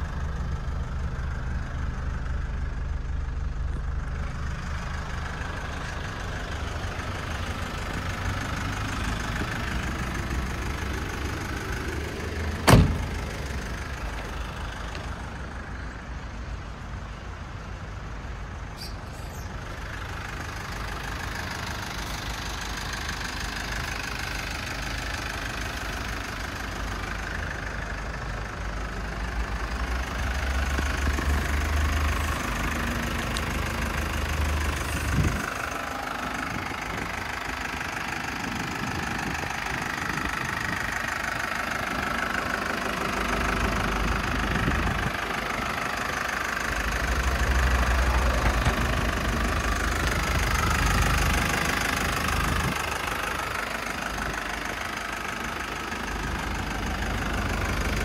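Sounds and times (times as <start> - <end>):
diesel engine idling: 0.0 - 58.0
sharp knock: 12.7 - 13.1.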